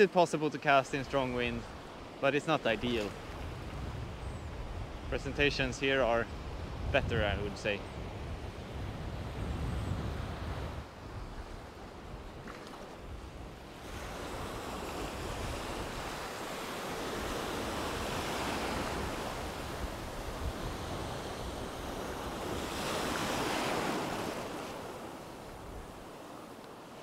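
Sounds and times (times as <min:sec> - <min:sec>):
sea waves breaking: 0:00.0 - 0:27.0
wind rumbling on microphone: 0:02.8 - 0:26.2.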